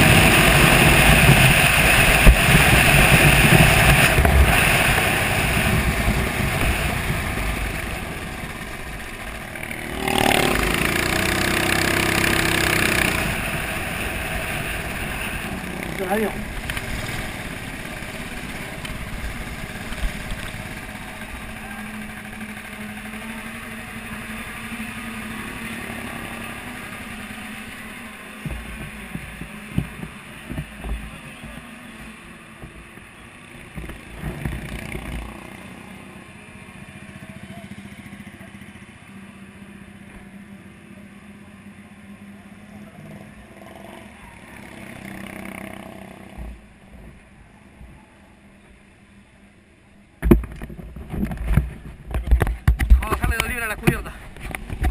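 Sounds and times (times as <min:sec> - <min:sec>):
background engines: 0:00.0 - 0:54.9
kart engine at low revs: 0:00.0 - 0:54.9
knocks and clatter: 0:50.2 - 0:54.9.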